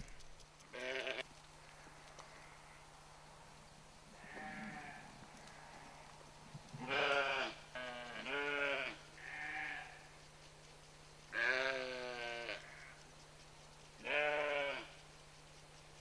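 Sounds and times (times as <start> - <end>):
young animals bleating: 0.7 - 1.3, 4.2 - 5.9, 6.8 - 10.1, 11.3 - 13.0, 14.0 - 15.0.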